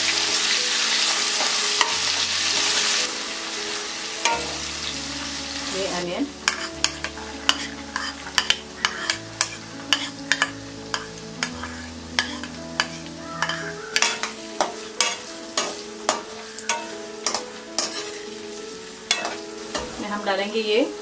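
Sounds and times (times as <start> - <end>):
onions sizzling in hot oil: 0.0 - 21.0
metal spoon clacking on pan: 6.4 - 18.2, 19.1 - 19.4.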